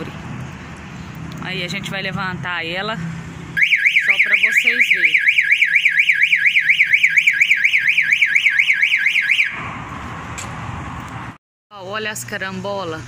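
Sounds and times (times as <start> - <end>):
electronic alarm warbling: 3.6 - 9.6.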